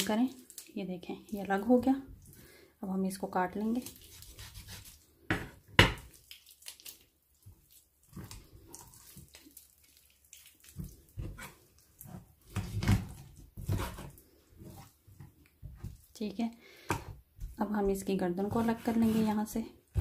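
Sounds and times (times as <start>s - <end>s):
raw chicken squelching and tearing: 0.0s - 1.6s, 3.6s - 5.1s, 6.0s - 14.4s
knife cutting: 3.9s - 5.0s, 12.5s - 14.8s.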